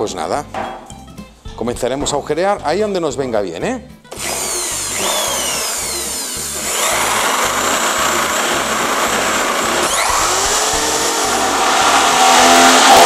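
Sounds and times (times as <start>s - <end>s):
electric drill boring sheet metal: 4.1s - 13.0s.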